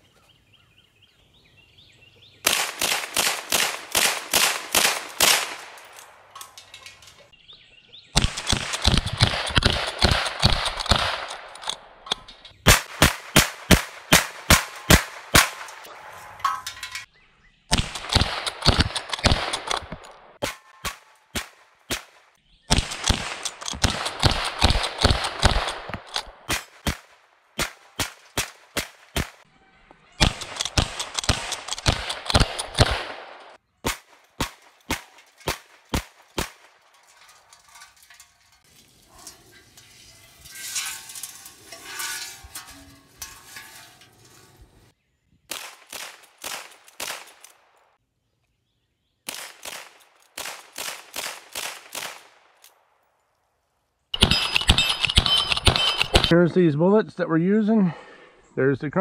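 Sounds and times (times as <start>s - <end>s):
rifle shots: 2.4s - 6.3s, 8.2s - 12.0s, 12.6s - 15.9s, 17.7s - 29.4s, 30.2s - 36.8s, 45.5s - 47.7s, 49.3s - 52.5s, 54.2s - 56.4s.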